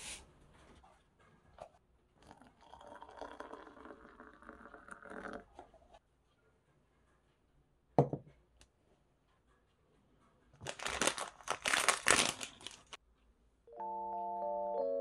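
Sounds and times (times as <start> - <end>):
ceramic mug knocking on desk: 8.0 - 8.3
plastic wrapper crinkling: 10.6 - 13.0.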